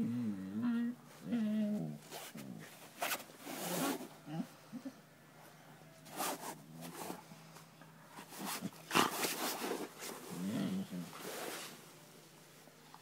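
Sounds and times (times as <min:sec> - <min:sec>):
dogs grunting: 0:08.6 - 0:11.2
dogs growling: 0:08.6 - 0:11.3.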